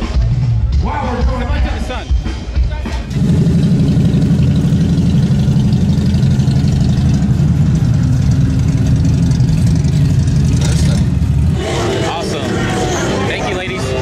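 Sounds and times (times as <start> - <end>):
motorcycle engine running: 3.1 - 14.0.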